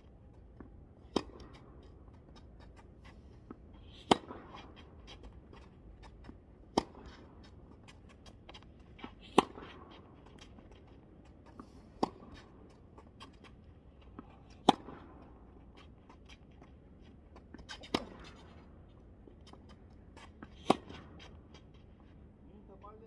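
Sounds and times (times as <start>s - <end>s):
tennis ball bounces: 0.5s - 2.8s, 3.5s - 16.3s, 17.4s - 18.6s, 20.3s - 21.3s
tennis balls struck by racquets: 0.6s - 16.6s, 17.4s - 18.7s, 19.5s - 21.6s.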